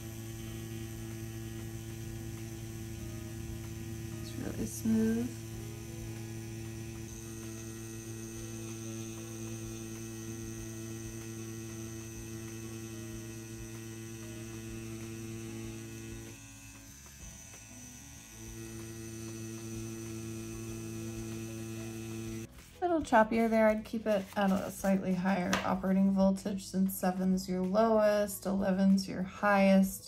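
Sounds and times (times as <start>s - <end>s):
tattoo pen motor hum: 0.0s - 22.5s.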